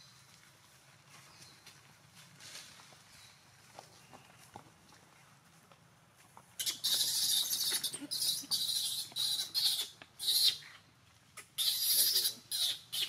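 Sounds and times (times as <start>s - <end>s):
baby monkey screaming: 6.6s - 10.7s, 11.5s - 13.0s.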